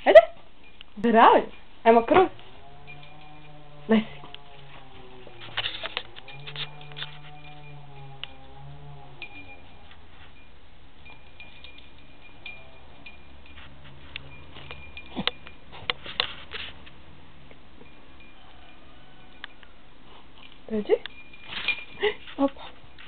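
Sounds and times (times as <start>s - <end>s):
jingle bell on collar: 0.6s - 16.8s, 17.8s - 23.0s.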